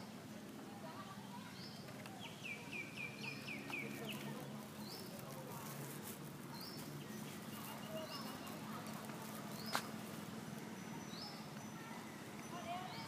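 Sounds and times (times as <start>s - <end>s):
birds chirping: 1.3s - 5.4s, 6.5s - 13.0s.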